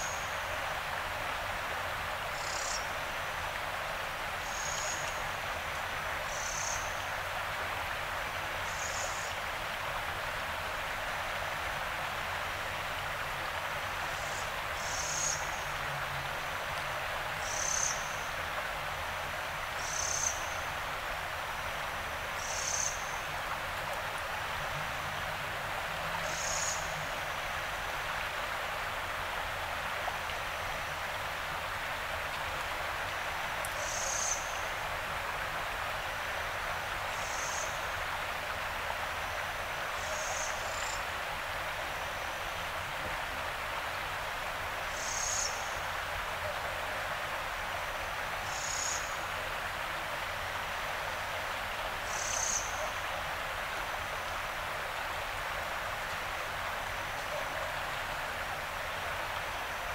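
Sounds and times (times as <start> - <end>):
river water flowing: 0.0 - 59.9.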